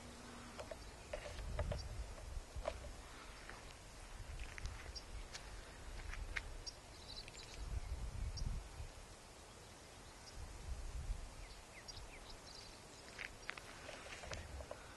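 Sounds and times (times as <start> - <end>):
wind buffeting microphone: 0.0 - 6.7, 7.3 - 9.0, 10.3 - 12.4
small birds chirping: 0.0 - 14.9.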